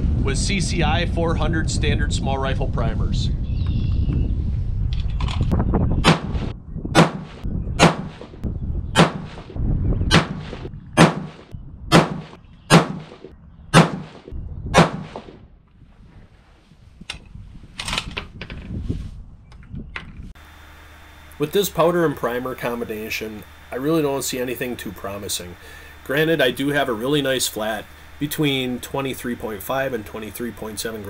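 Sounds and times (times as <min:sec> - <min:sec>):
rifle shots: 0:06.0 - 0:08.3, 0:09.0 - 0:15.4.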